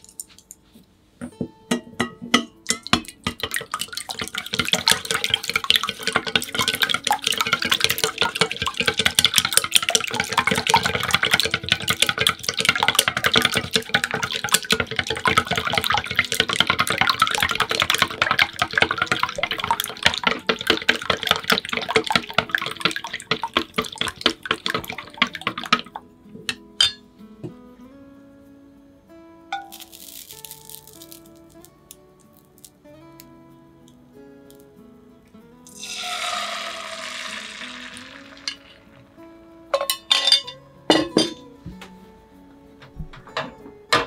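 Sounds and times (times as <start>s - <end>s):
wet slapping of beaten egg: 2.7s - 26.0s, 35.7s - 38.8s.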